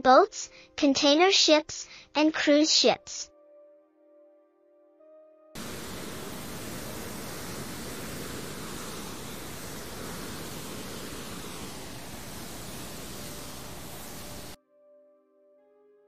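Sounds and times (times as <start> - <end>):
wind and sea rushing: 5.6 - 14.6
wind rumble on microphone: 5.6 - 14.6.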